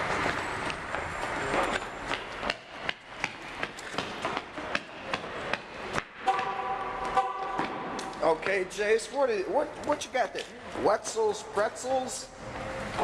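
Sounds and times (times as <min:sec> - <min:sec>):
brisk footsteps on concrete: 0:00.0 - 0:06.2
steady multi-pitch tone: 0:06.3 - 0:07.7.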